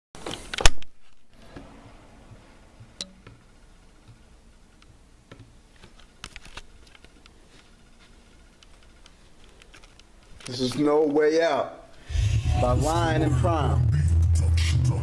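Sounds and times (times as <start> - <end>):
faint clicks and taps: 2.3 - 11.2.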